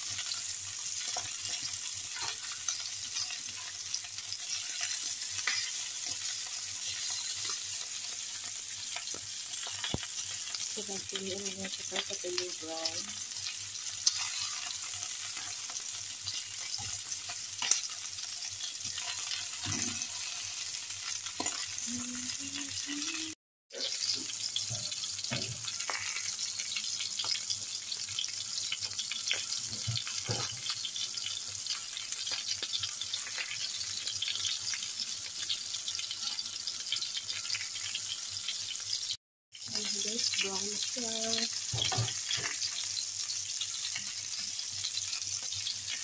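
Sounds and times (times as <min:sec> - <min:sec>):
meat sizzling in a pan: 0:00.0 - 0:46.0
fat crackling and popping: 0:08.9 - 0:13.2.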